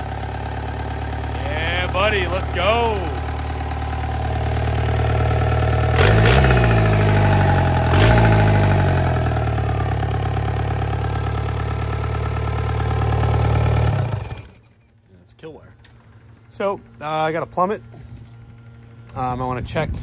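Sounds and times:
diesel engine revving and idling: 0:00.0 - 0:14.6
sharp crack of engine rev: 0:05.8 - 0:09.6.

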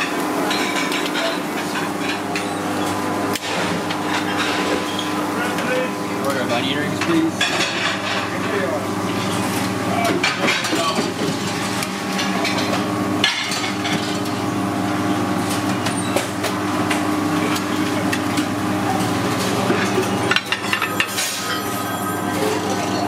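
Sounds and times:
plates and utensils clinking: 0:00.0 - 0:03.0, 0:03.6 - 0:05.2, 0:07.0 - 0:09.4, 0:10.0 - 0:14.3, 0:17.6 - 0:23.0.

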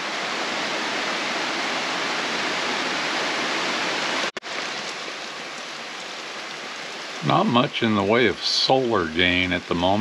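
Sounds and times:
rain on trees and foliage: 0:00.0 - 0:10.0.

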